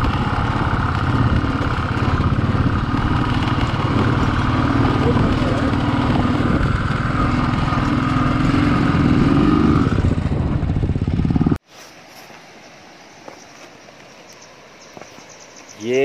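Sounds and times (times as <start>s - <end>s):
motorcycle engine running: 0.0s - 11.6s
faint outdoor background: 0.0s - 16.0s.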